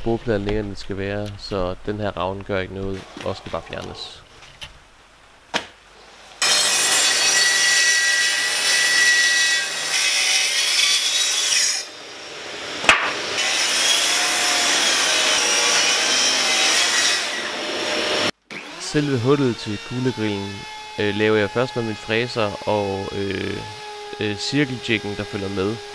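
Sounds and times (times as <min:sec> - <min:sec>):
track saw cutting wood: 0:06.4 - 0:25.9
sharp knock: 0:12.9 - 0:13.2.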